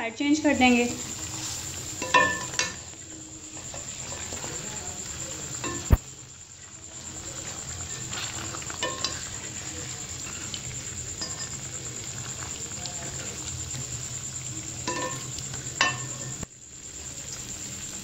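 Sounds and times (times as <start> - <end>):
chicken sizzling in a pan: 0.0 - 18.0
spatula scraping and knocking pan: 1.0 - 2.9, 7.4 - 9.4.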